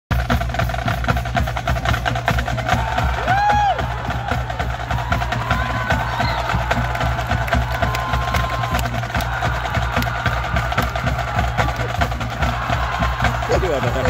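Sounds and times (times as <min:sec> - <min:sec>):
rising-and-falling whoop: 0:02.8 - 0:13.5.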